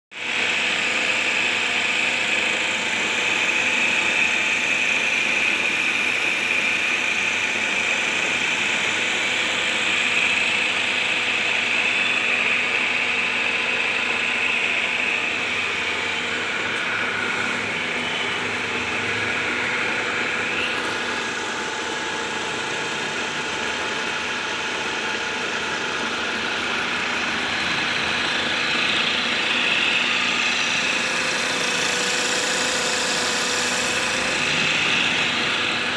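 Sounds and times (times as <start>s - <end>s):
wood lathe motor whine: 0.2s - 35.9s.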